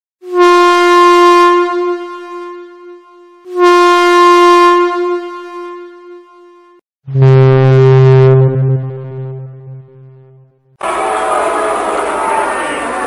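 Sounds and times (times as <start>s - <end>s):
train air horn blasts: 0.2s - 5.6s.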